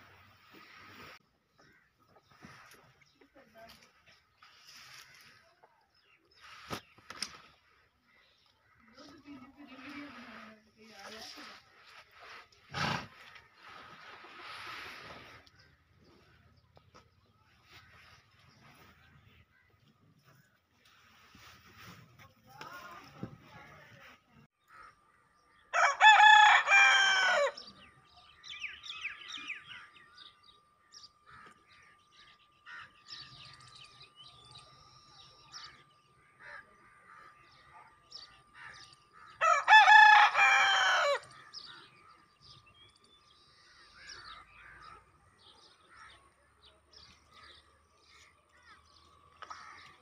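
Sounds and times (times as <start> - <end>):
rooster crowing: 25.7 - 27.7, 39.4 - 41.4.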